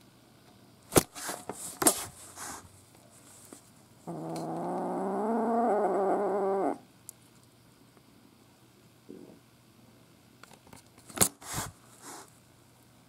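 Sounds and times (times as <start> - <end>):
kitten growling: 4.0 - 6.9.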